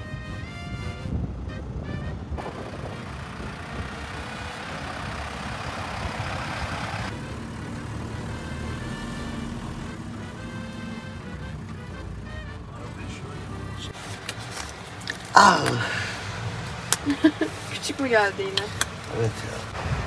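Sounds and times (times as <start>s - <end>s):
truck engine hum: 0.0s - 20.0s
loud rushing noise: 2.2s - 8.8s.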